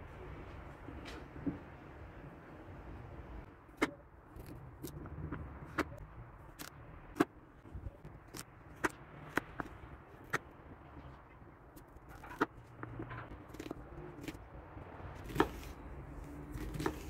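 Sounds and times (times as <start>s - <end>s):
knife chopping on wooden board: 15.2s - 15.7s, 16.6s - 17.0s.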